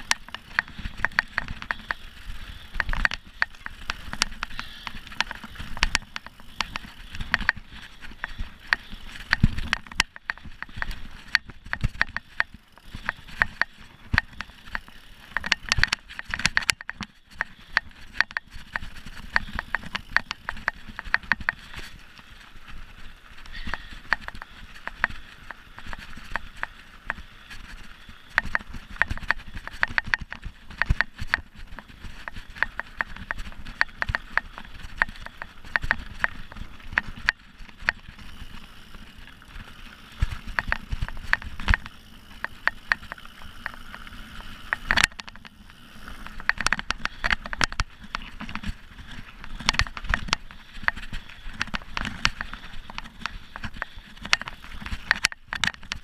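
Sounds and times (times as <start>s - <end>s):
mountain bike rattling: 0.0s - 56.0s.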